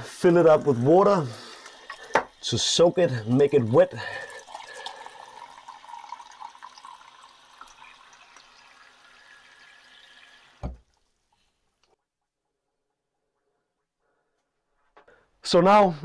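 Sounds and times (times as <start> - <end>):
tap water running into jar: 0.4 - 10.9
thump: 10.6 - 10.8.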